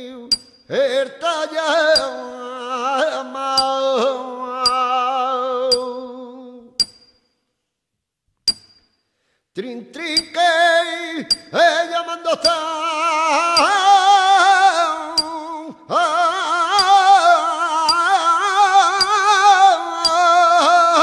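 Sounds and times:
metallic hammer strikes: 0.3s - 0.7s, 2.0s - 2.2s, 3.6s - 3.8s, 4.6s - 4.9s, 5.7s - 5.9s, 6.8s - 7.4s, 8.5s - 9.0s, 10.2s - 10.4s, 11.3s - 11.6s, 12.4s - 12.6s, 15.2s - 15.4s, 16.8s - 17.0s, 17.9s - 18.2s, 19.0s - 19.3s
unaccompanied flamenco singing: 16.6s - 21.0s.

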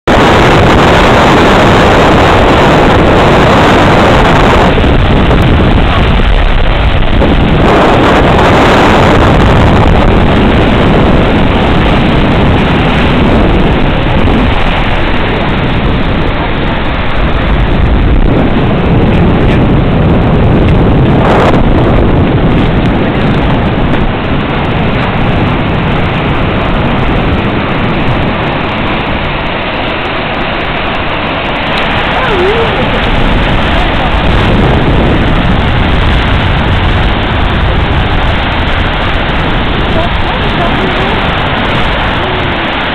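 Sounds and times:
waterfall roaring: 0.0s - 42.9s.

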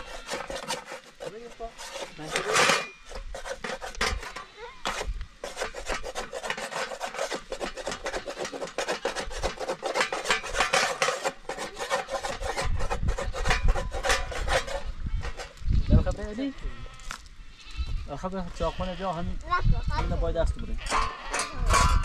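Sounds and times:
rapid rubbing and scraping: 0.0s - 15.6s.

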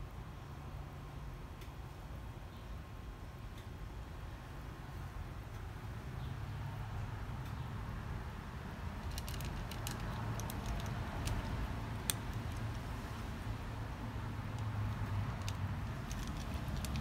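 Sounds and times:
cat crunching dry kibble: 8.9s - 13.1s, 14.4s - 17.0s.

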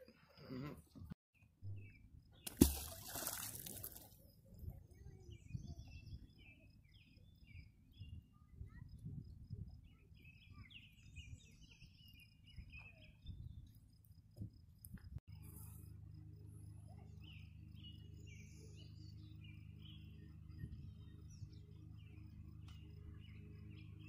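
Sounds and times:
magnet splashing into water: 2.4s - 4.1s.

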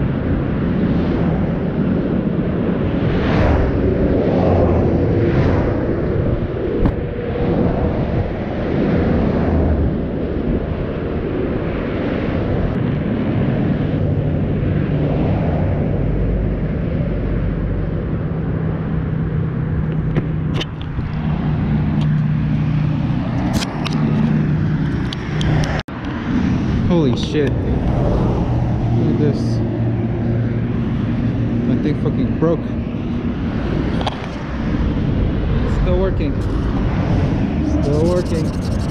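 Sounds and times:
road noise and wind rumbling: 0.0s - 38.9s
steady engine hum: 0.0s - 38.9s
camera knocking on asphalt: 19.9s - 21.2s.

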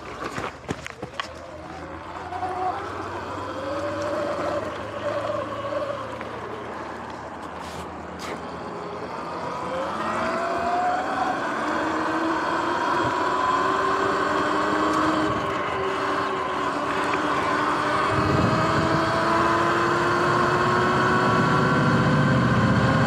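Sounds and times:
tyre and wind noise: 0.0s - 23.0s
electric motor whining: 1.5s - 23.0s.

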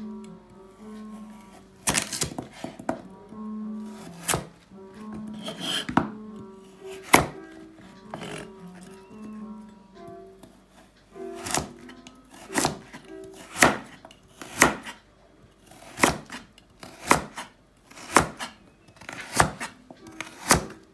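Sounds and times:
background music: 0.0s - 20.9s
knife chopping carrot on board: 4.0s - 4.5s, 6.9s - 7.4s, 11.4s - 15.0s, 15.6s - 20.8s.

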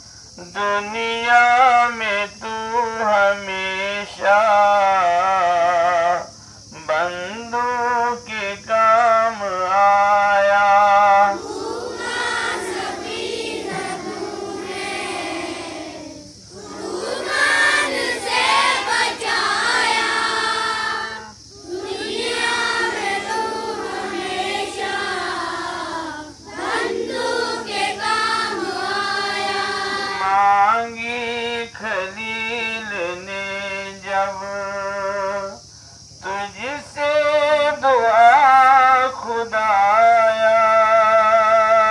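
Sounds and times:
children singing together: 11.2s - 30.5s.

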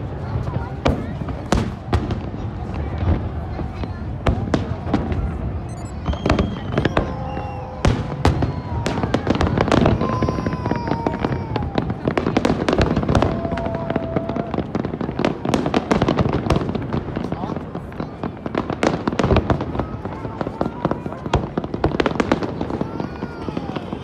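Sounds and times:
fireworks bangs and crackles: 0.0s - 24.0s.

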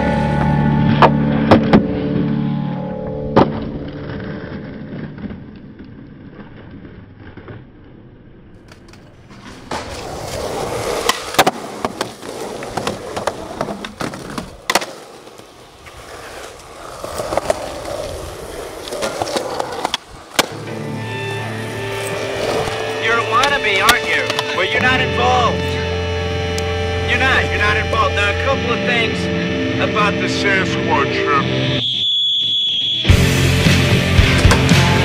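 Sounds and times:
skateboard wheels rolling: 0.0s - 25.7s, 33.1s - 35.0s
skateboards clacking: 3.2s - 25.7s, 33.7s - 35.0s.

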